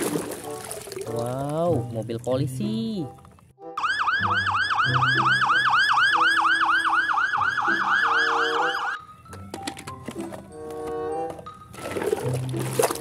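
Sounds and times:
police siren yelp: 3.8 - 9.0.

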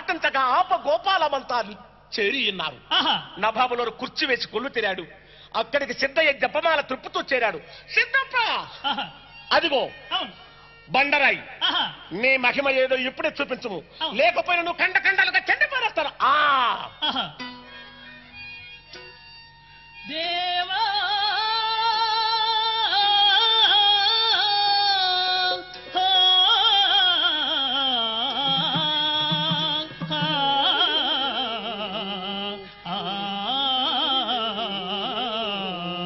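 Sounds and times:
person singing ornamented phrases: 20.0 - 36.0.

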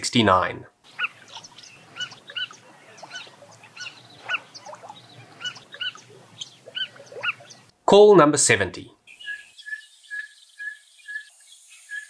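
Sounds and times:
wild animal calling: 0.9 - 7.7.

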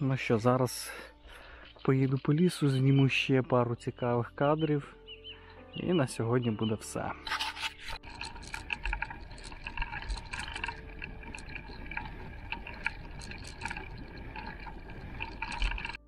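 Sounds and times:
clicks and rattles: 7.2 - 16.0.

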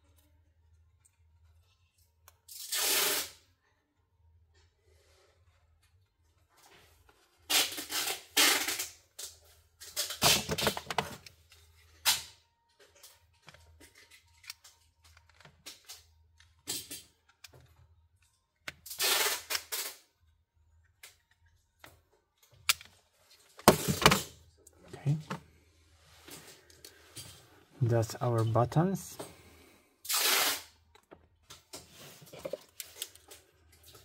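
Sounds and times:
peeling and scraping of phone parts: 0.0 - 3.4, 7.0 - 23.7, 29.4 - 34.0.

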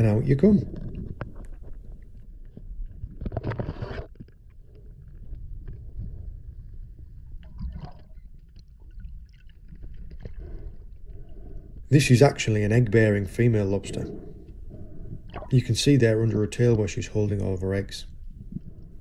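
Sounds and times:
muffled underwater rumble: 0.0 - 19.0
faint clicks underwater: 15.3 - 15.6.

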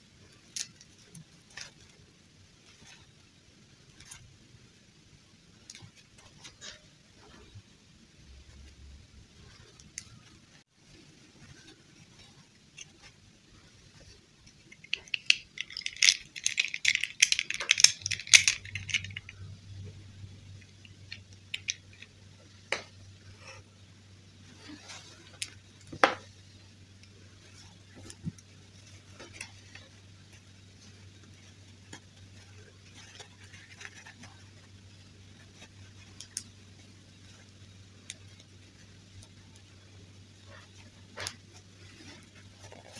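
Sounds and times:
faint low hum: 0.0 - 42.9
tulle dress rustling: 8.4 - 42.9
plastic dolls clicking and tapping: 14.6 - 19.5, 20.6 - 22.1.

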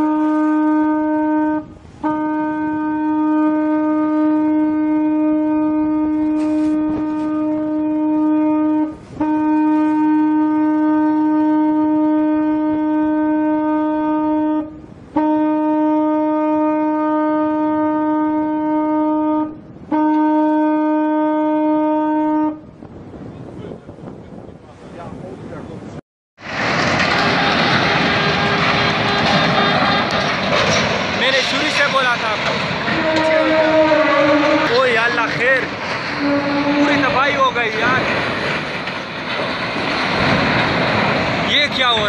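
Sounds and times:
ship's horn blasts: 0.0 - 23.5, 27.1 - 30.3, 32.9 - 37.5.

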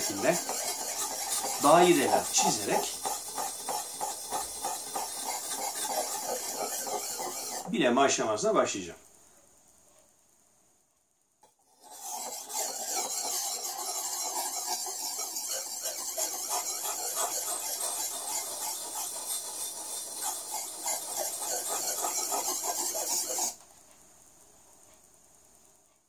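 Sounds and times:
knife scraping on whetstone: 0.0 - 7.7, 11.7 - 23.6.

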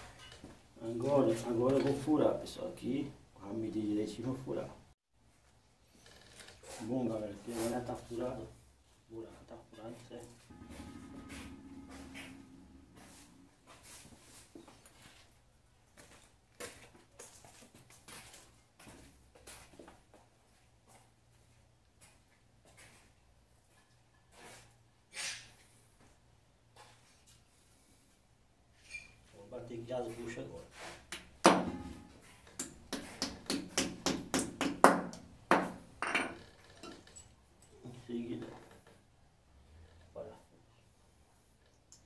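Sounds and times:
tools scraping on tiled floor: 10.5 - 14.6.

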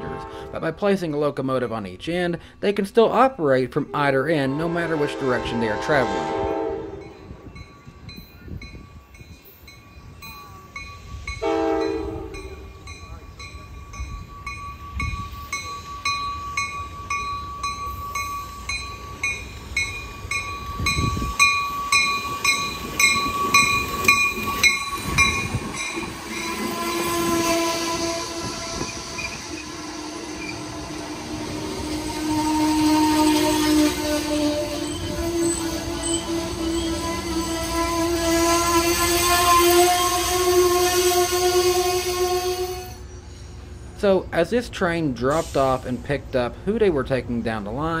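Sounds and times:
train horn blast: 0.0 - 0.8, 4.4 - 7.4, 11.4 - 12.7, 26.3 - 43.0
train cars squealing: 4.4 - 46.4
crossing bell ringing: 4.5 - 43.8.

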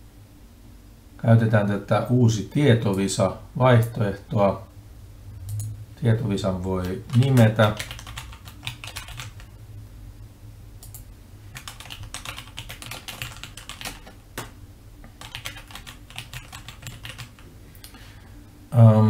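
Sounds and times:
typing on a computer keyboard: 6.6 - 9.5, 11.6 - 14.2, 15.1 - 17.5.

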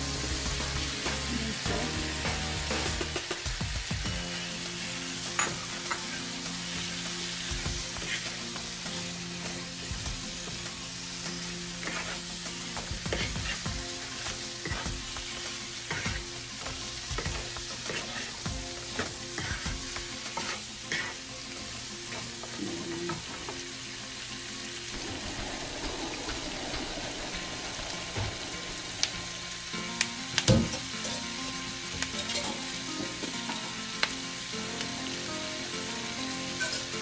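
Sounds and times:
food sizzling in a frying pan: 0.0 - 37.0
spatula stirring and scraping: 7.4 - 8.6, 11.3 - 23.2.

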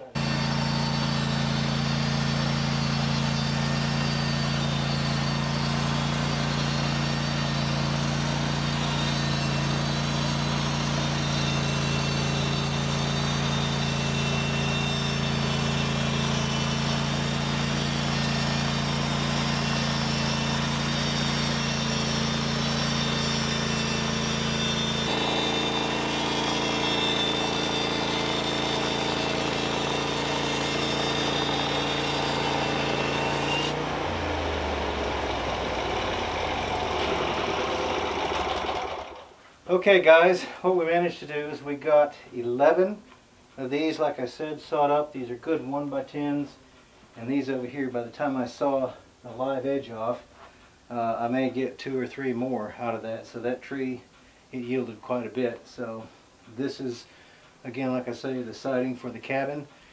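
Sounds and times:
sawmill engine running under load: 0.1 - 39.3.

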